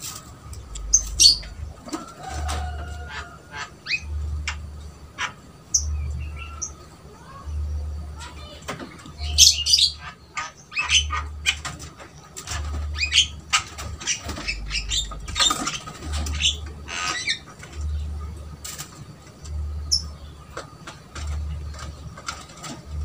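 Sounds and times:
birds squawking and chirping: 0.0 - 23.0
low pulsing hum: 0.0 - 23.0.

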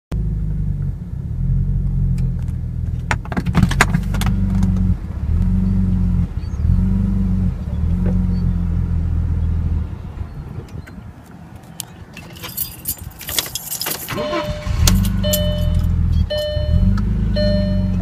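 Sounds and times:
sharp clicks and rattles: 2.2 - 4.9, 11.6 - 17.1.

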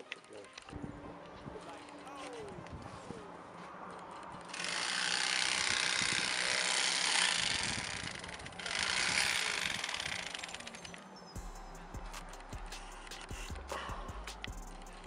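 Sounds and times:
electric fillet knife running: 4.5 - 10.4.

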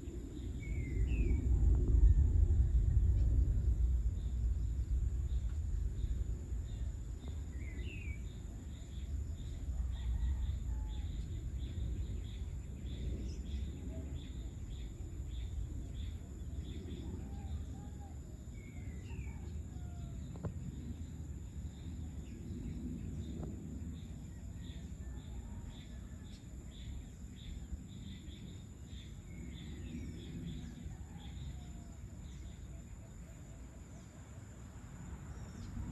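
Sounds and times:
low rumble: 0.0 - 17.8
insects chirping: 0.0 - 35.9.

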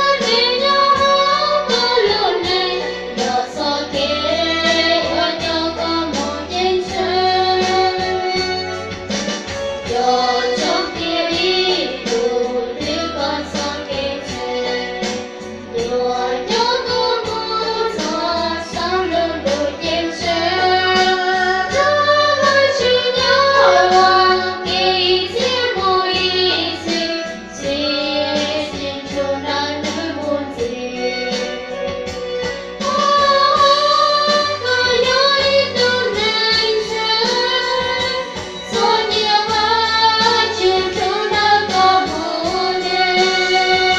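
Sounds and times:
women singing into microphones: 0.0 - 8.9, 9.7 - 43.9
backing track with beat and bass: 23.3 - 25.0.

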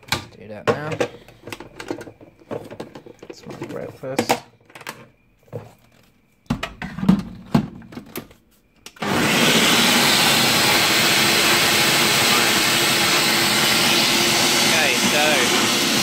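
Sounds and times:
blender running at full speed: 9.0 - 16.0.

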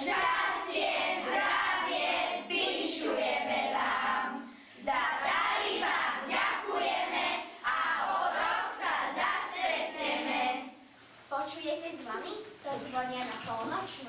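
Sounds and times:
children singing together: 0.0 - 10.8.

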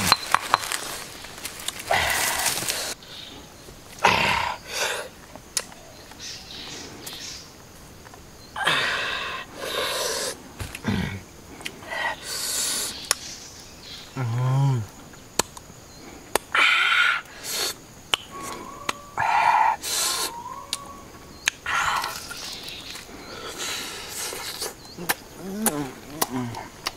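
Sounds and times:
lip smacks: 24.1 - 26.9.

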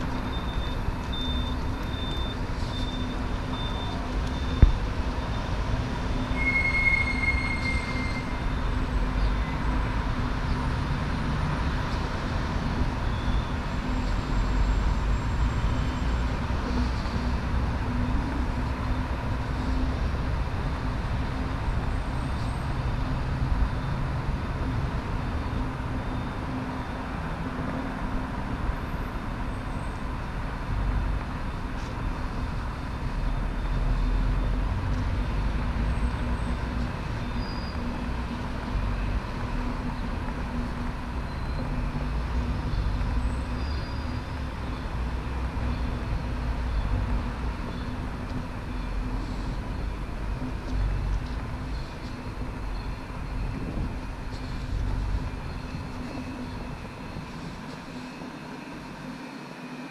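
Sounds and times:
road traffic rumble: 0.0 - 59.9.

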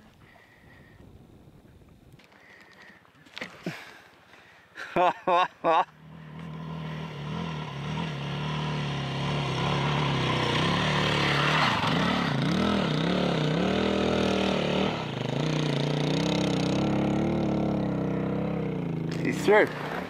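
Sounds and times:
motorcycle engine revving: 5.9 - 20.0.

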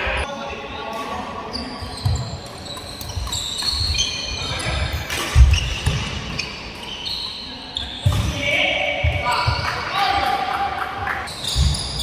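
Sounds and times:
shoes squeaking on court floor: 0.8 - 8.4, 9.0 - 9.9, 11.1 - 12.0.

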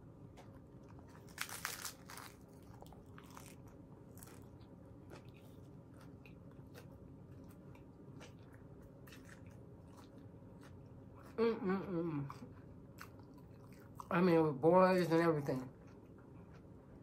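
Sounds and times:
taco shell crunching: 0.8 - 10.8
chewing: 2.2 - 11.4, 12.2 - 14.1.

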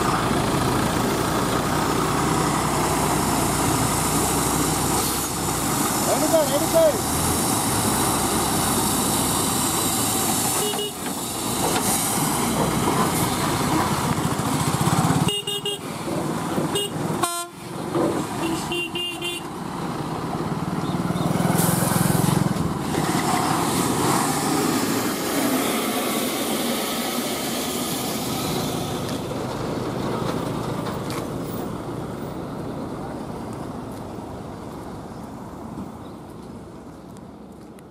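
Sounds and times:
lorry diesel engine running: 0.0 - 35.7
vehicle horn honking: 10.6 - 11.0, 15.2 - 15.8, 16.7 - 17.6, 18.4 - 19.5.

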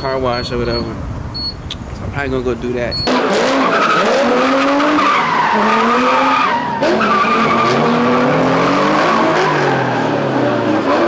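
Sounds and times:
car engine revving: 0.0 - 11.0
tyres squealing: 1.6 - 10.2.

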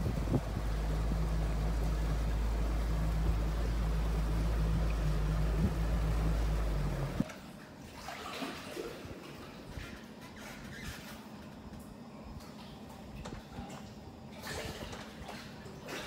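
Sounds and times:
wind buffeting microphone: 0.0 - 7.2
boat motor hum: 0.0 - 7.3.

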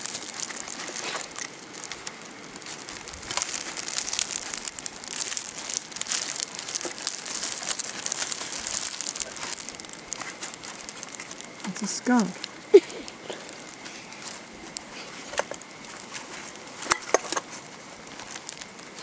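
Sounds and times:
plastic trash bags rustling: 0.0 - 19.0
small crackles and clicks: 0.0 - 19.0.

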